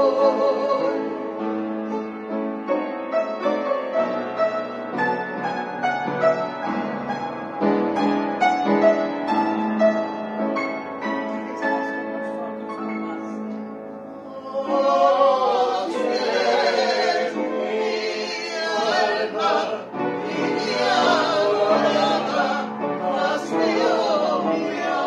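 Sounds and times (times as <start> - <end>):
group of voices singing: 0.0 - 1.9, 14.2 - 25.0
upright piano playing: 0.0 - 25.0.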